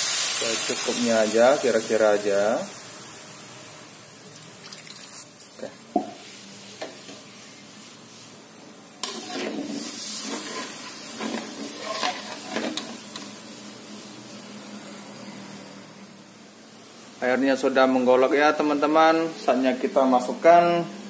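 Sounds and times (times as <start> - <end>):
paste sizzling in wok: 0.0 - 20.4
spatula scraping wok: 9.0 - 13.3.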